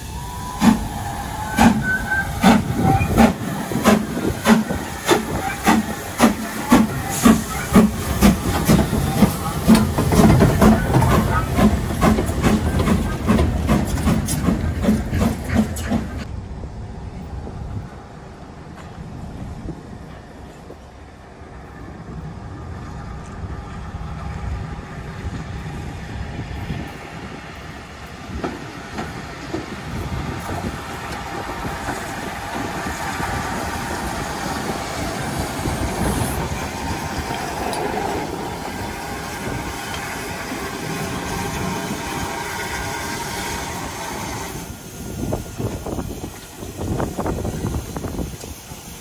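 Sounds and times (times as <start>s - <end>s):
steam locomotive rolling past: 0.0s - 49.0s
wheels clicking over rail joints: 28.0s - 42.0s.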